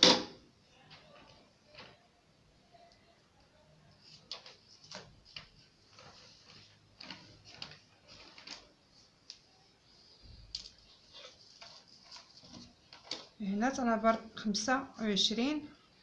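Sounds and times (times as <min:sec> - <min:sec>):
paper rustling and clicks: 0:04.0 - 0:09.5, 0:10.3 - 0:13.4.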